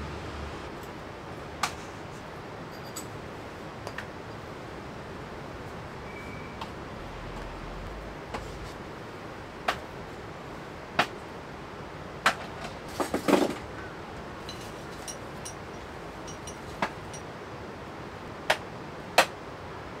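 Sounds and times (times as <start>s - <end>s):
steady background hiss: 0.0s - 20.0s
items knocking on wooden shelves: 12.2s - 13.6s.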